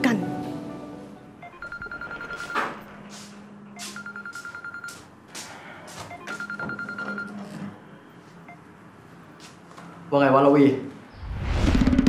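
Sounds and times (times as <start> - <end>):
mobile phone ringing: 1.4 - 3.0, 3.7 - 5.1, 6.0 - 8.7.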